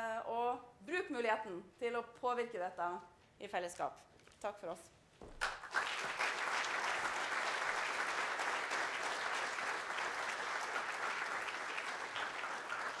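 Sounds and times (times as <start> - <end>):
audience applauding: 5.4 - 13.0.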